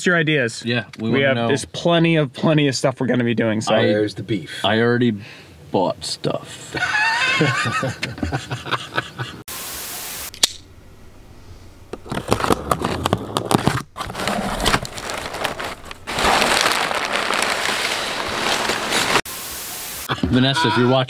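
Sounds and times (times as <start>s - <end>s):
steady hiss: 9.5s - 10.4s, 19.0s - 21.0s
packing paper rustling: 12.0s - 19.2s.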